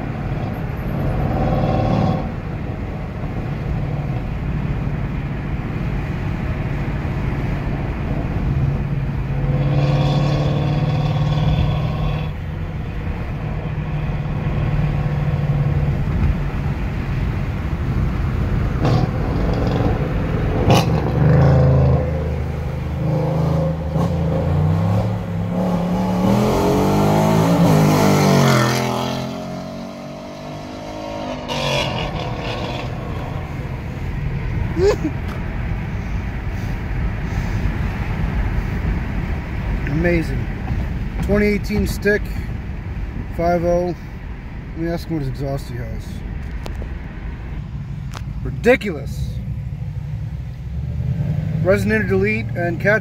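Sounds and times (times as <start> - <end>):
car engine accelerating hard: 7.3 - 17.4, 18.0 - 36.1
engine revs climbing through gears: 9.2 - 12.4, 18.6 - 34.8.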